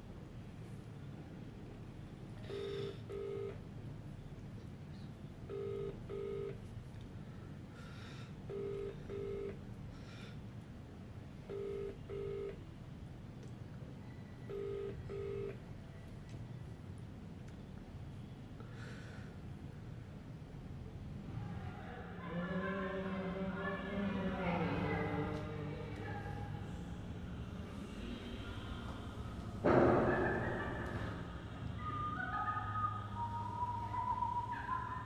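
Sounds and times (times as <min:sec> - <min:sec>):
phone ringback tone: 0:02.4 - 0:03.6, 0:05.5 - 0:06.6, 0:08.5 - 0:09.5, 0:11.5 - 0:12.6, 0:14.5 - 0:15.6.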